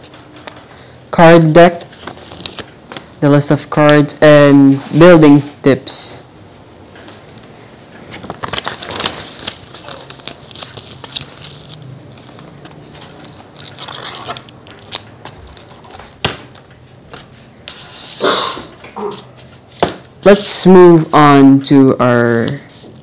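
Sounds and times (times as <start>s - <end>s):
paper and cardboard crinkling: 1.8s - 2.8s, 8.0s - 17.8s.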